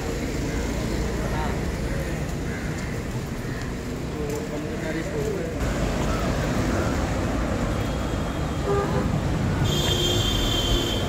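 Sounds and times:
city road traffic: 0.0 - 11.0
car horn beeps: 7.9 - 11.0.

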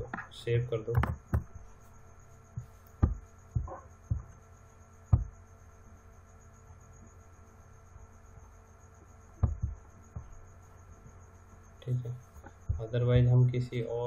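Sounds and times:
faint electrical hum: 0.0 - 14.0.

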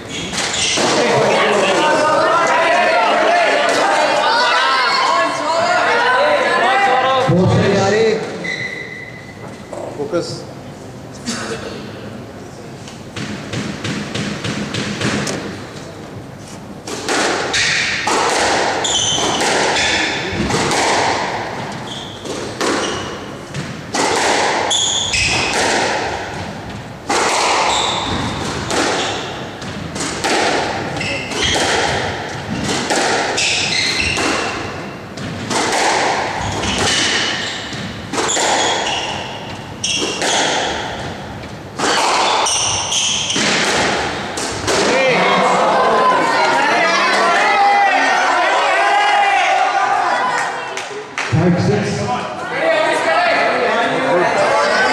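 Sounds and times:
squash ball hitting racquets and walls: 0.0 - 2.0, 13.0 - 15.8, 16.8 - 45.3
shoes squeaking on wooden floor: 8.4 - 9.8, 18.8 - 20.4, 21.6 - 23.6, 24.7 - 25.5, 27.7 - 29.9, 30.9 - 31.7, 33.4 - 34.6, 36.4 - 43.5.

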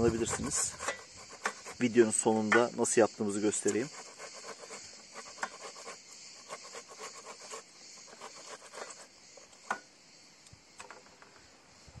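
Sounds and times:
tomato scraped on a grater: 0.0 - 2.2, 3.5 - 9.1.

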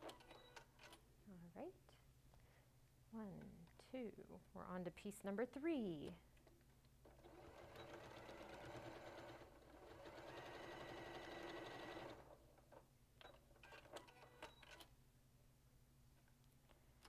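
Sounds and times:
sewing machine stitching: 7.1 - 12.4, 13.3 - 14.9.

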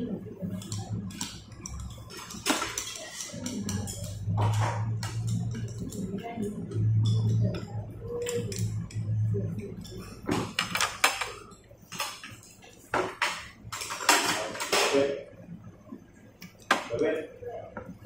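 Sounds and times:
chopsticks clinking on porcelain: 0.6 - 10.2.

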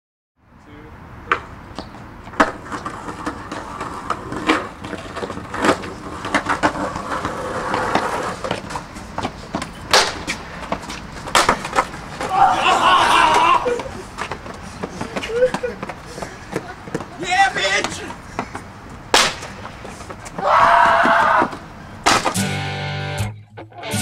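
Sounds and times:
skateboards clacking on ground: 1.2 - 22.5
skateboards rolling over concrete: 1.2 - 22.9.

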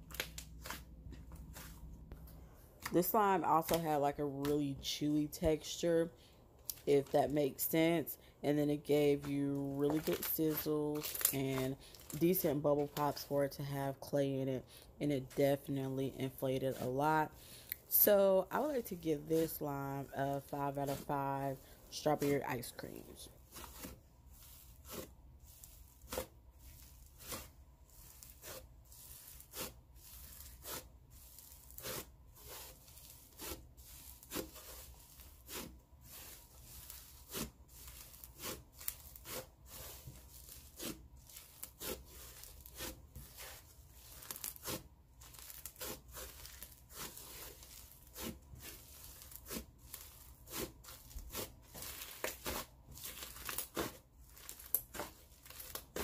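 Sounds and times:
slime popping and crackling: 9.9 - 11.4.

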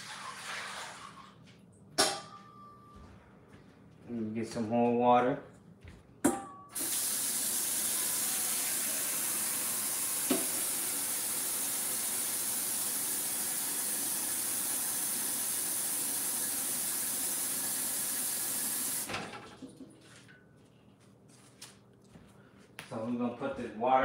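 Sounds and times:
tap water filling a pot: 0.0 - 1.3, 6.8 - 20.2.

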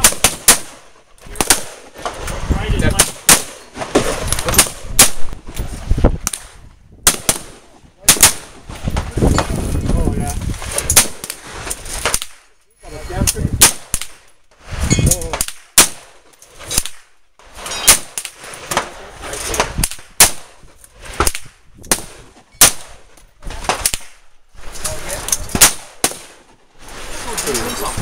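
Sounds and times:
rifle shots: 0.0 - 2.2, 2.8 - 5.3, 6.2 - 8.6, 10.8 - 12.5, 13.6 - 14.3, 15.3 - 17.1, 17.8 - 20.6, 21.2 - 23.0, 25.4 - 26.5.

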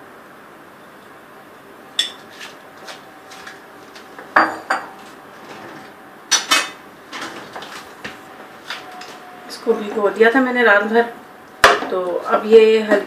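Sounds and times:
metal cookware clinking: 2.0 - 2.2.

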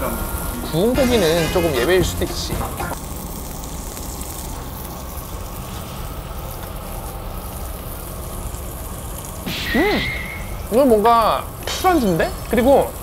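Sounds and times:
meat sizzling on grill: 0.0 - 13.0.

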